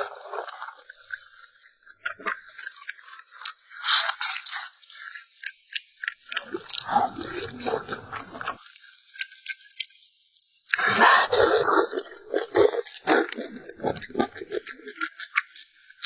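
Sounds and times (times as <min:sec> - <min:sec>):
wet clicking mouth sounds: 0:05.4 - 0:08.6, 0:10.7 - 0:15.4
person chewing food: 0:06.0 - 0:08.6, 0:10.7 - 0:15.0.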